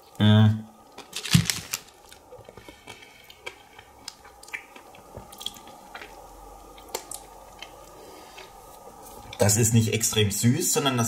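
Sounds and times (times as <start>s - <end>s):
person chewing ice cream: 1.9s - 9.4s.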